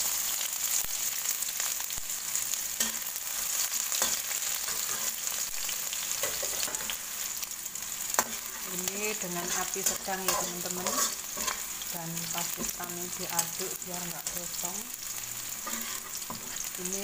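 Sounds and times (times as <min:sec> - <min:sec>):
shallots and garlic sizzling in oil: 0:00.0 - 0:17.0
spatula clicking and scraping: 0:08.2 - 0:08.7, 0:09.4 - 0:11.7, 0:15.6 - 0:16.7.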